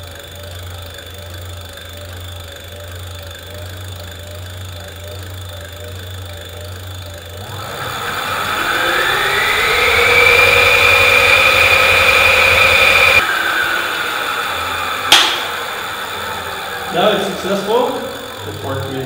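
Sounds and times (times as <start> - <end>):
electric motor whine: 0.0 - 19.0
sharp click: 15.1 - 15.5.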